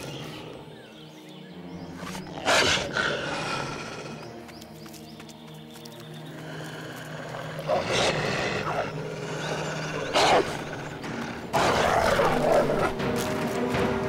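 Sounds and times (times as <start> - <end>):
cartoon wolf growling: 7.0 - 13.0.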